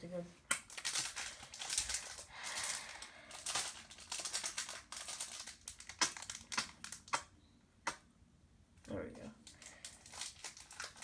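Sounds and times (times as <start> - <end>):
foil wrapper crinkling and tearing: 0.6 - 7.2, 9.4 - 11.0.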